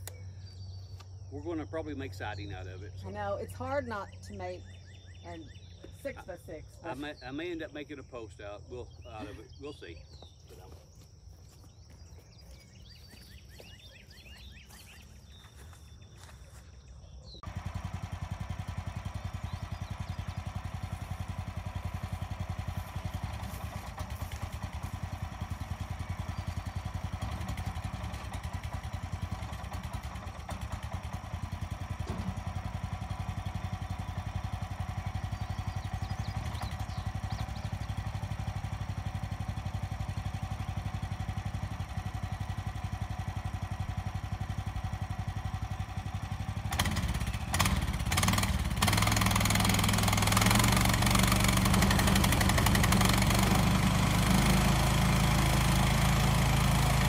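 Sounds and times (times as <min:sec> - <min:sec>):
sawmill engine running: 0:17.4 - 0:57.0.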